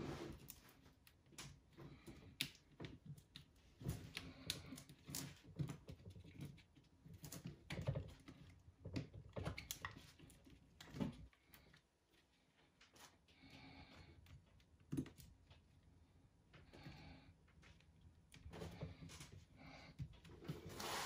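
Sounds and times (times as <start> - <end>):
soft handling rubs: 20.4 - 21.0.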